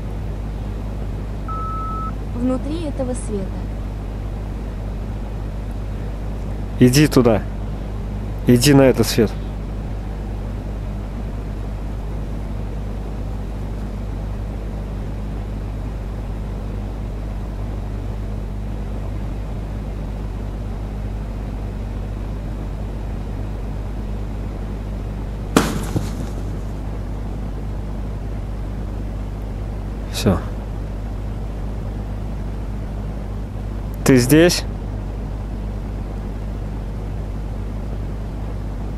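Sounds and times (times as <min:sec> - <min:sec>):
steady low hum: 0:00.0 - 0:38.9
sharp pop: 0:25.6 - 0:26.6.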